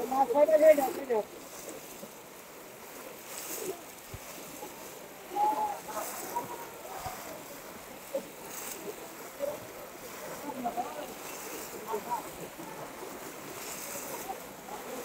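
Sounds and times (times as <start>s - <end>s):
crowd splashing through water: 0.0s - 15.0s.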